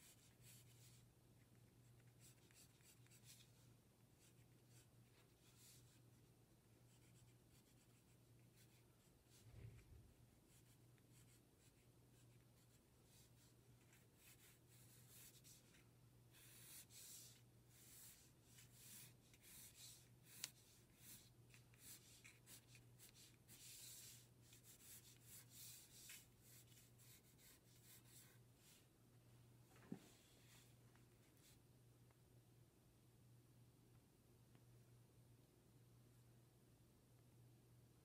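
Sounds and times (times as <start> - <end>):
pencil scratching on paper: 0.0 - 1.0, 1.6 - 3.6, 4.2 - 6.1, 6.8 - 28.4.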